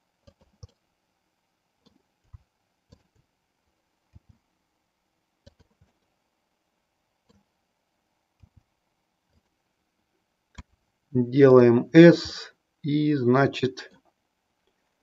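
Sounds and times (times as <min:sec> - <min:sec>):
mouse and keyboard clicks: 0:00.2 - 0:00.8, 0:05.4 - 0:06.1.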